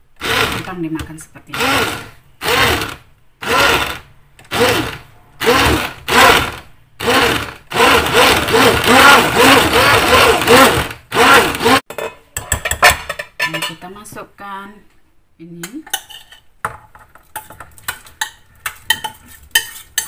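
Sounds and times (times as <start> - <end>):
immersion blender motor whirring: 0.2 - 0.7, 1.5 - 11.8.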